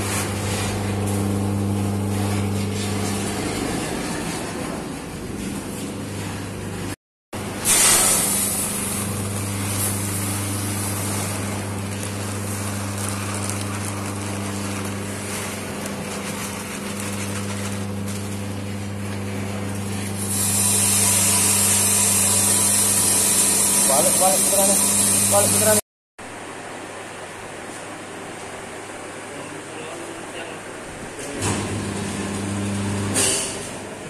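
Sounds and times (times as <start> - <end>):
electric motor hum: 0.0 - 4.4, 8.2 - 25.8.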